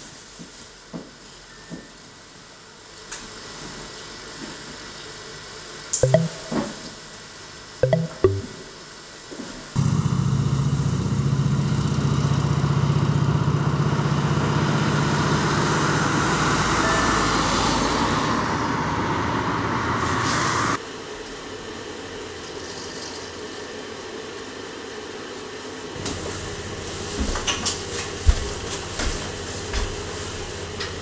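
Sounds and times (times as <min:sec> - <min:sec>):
vehicle engine running close by: 0:09.8 - 0:16.8
street traffic: 0:14.6 - 0:20.8.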